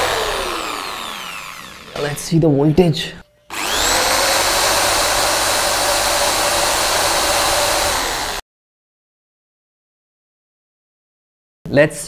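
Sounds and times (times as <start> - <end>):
electric drill whining: 0.0 - 2.2, 3.5 - 8.4.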